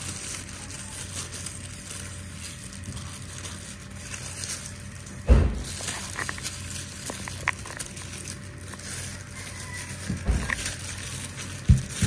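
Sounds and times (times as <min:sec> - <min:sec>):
salt rubbed on fish: 0:00.0 - 0:12.0
dull thump: 0:05.3 - 0:05.7.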